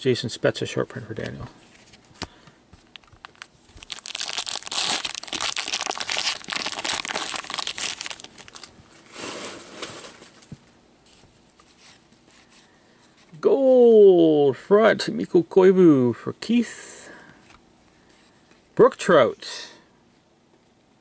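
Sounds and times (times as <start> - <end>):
card pack wrapper crinkling: 2.2 - 8.7
wrapper tearing: 2.9 - 10.4.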